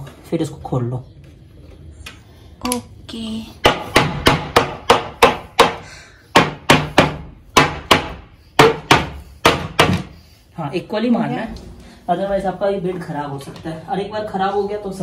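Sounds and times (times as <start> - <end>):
knocks on wooden bed frame: 6.4 - 10.1.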